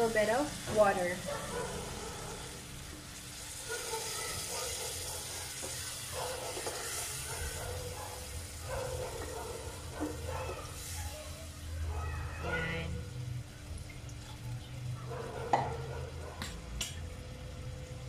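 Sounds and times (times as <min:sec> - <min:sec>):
sauce sizzling in a pot: 0:00.0 - 0:15.0
water pouring: 0:13.6 - 0:14.9.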